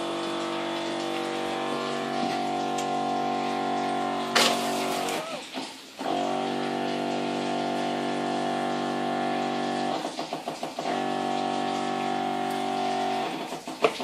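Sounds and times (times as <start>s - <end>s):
electric pump humming: 0.0s - 14.0s.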